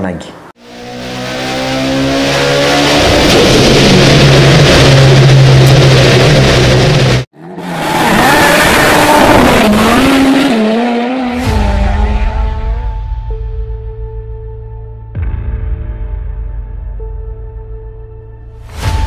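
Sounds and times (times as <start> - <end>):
race car engine revving: 0.6 - 12.8.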